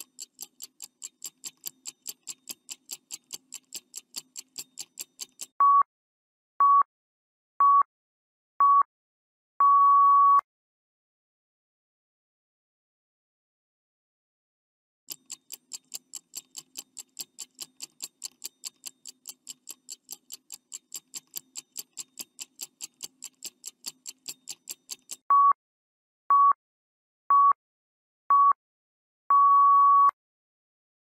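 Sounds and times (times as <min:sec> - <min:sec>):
clock ticking quickly: 0:00.0 - 0:05.6, 0:15.1 - 0:25.3
short electronic beeps: 0:09.6 - 0:10.4, 0:25.3 - 0:25.6, 0:29.3 - 0:30.2.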